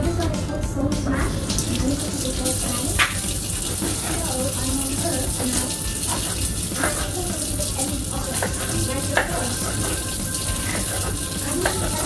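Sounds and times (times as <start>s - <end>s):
tap running into steel sink: 1.3s - 12.0s
knife chopping on plastic board: 8.3s - 10.0s.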